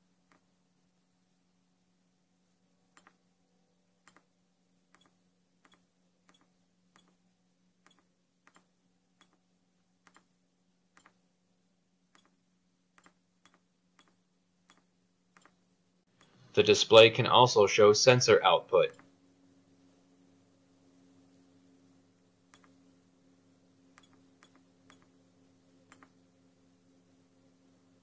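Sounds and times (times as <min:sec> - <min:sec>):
faint steady hum: 0:00.0 - 0:28.0
push buttons clicking: 0:23.9 - 0:25.1.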